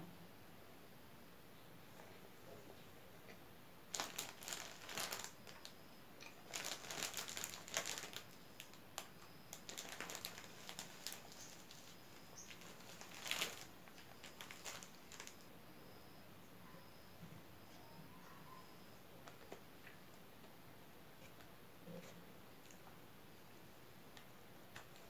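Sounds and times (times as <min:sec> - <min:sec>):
plastic bag crinkling: 0:03.9 - 0:15.5.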